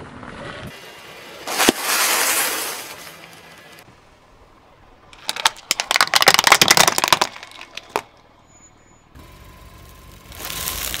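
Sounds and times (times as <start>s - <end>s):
tyre crushing object crackle: 1.4s - 3.7s, 9.8s - 11.0s
car engine low rumble: 2.8s - 5.9s, 7.3s - 11.0s
faint steady whine: 7.6s - 11.0s.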